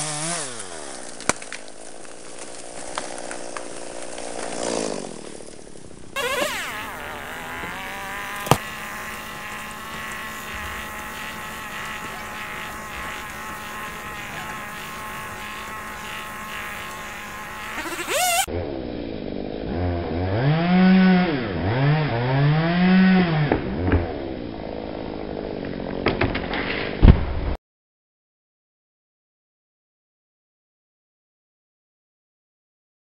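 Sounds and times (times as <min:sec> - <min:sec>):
chainsaw revving: 0:00.0 - 0:01.3, 0:02.6 - 0:18.5, 0:19.4 - 0:23.5.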